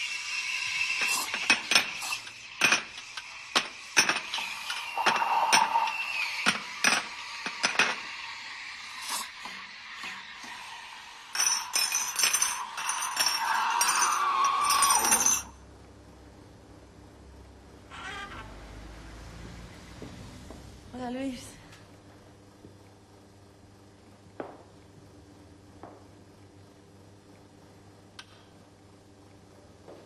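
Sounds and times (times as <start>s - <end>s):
cups and saucers clinking: 0.8s - 8.3s, 10.5s - 15.6s.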